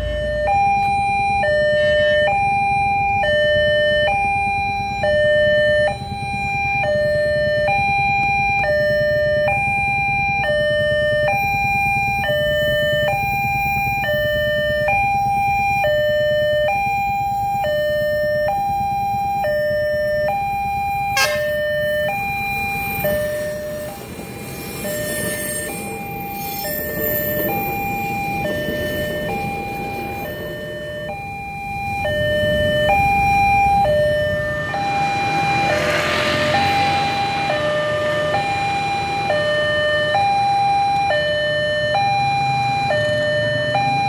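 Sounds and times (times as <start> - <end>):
two-tone crossing alarm: 0.0 - 44.0
train rumble: 20.9 - 40.3.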